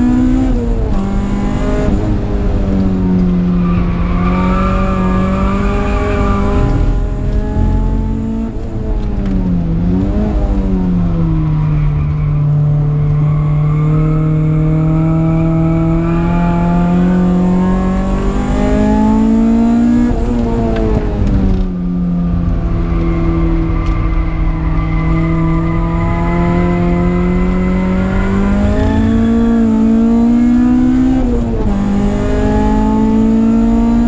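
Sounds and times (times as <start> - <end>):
car engine revving: 0.0 - 34.0.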